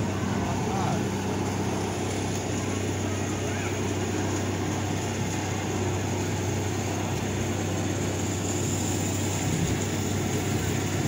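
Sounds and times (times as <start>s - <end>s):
boat motor humming: 0.0s - 11.0s.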